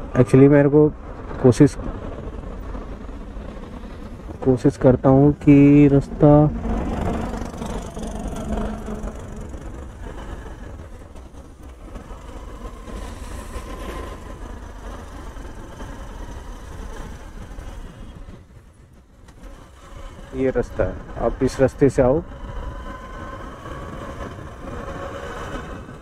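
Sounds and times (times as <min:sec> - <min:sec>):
road and wind noise: 0:00.0 - 0:26.0
vehicles passing: 0:00.0 - 0:26.0
motorcycle engine running: 0:05.2 - 0:10.7.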